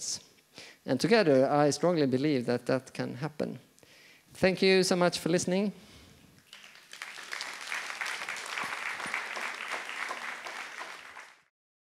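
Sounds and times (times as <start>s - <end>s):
audience applauding: 6.4s - 11.5s.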